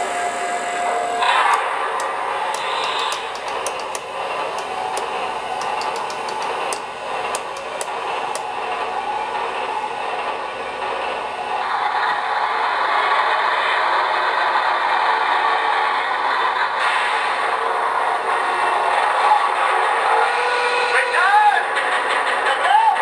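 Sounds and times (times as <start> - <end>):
model train running whir: 0.0 - 23.0
wheels clicking over rails: 1.2 - 12.2, 21.6 - 23.0.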